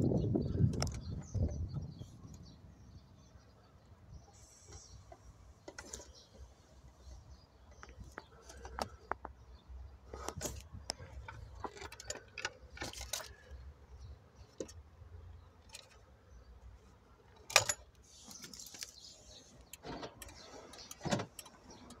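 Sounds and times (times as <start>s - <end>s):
small clicks and rustles: 10.1s - 13.6s, 17.3s - 22.0s.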